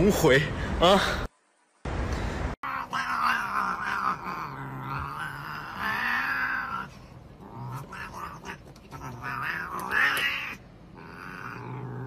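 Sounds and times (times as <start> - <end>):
cat yowling: 2.6 - 12.0.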